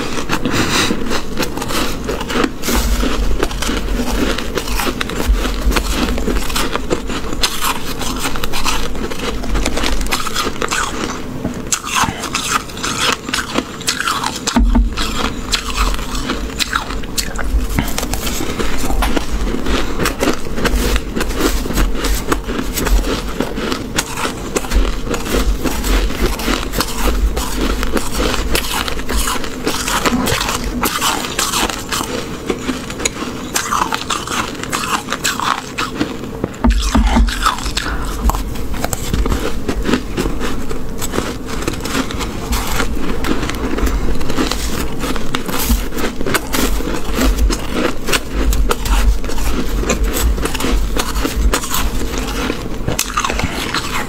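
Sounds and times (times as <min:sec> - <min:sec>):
frost crunched between teeth: 0:00.0 - 0:54.0
spoon scraping crunchy frost: 0:00.0 - 0:54.0.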